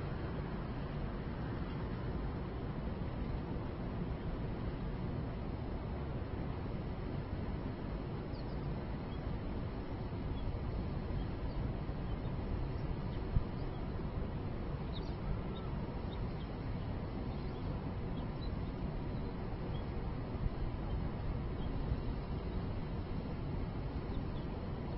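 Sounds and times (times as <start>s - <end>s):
low city rumble: 0.0s - 24.9s
faint bird chirps: 8.3s - 9.3s, 11.2s - 13.9s, 14.8s - 19.9s.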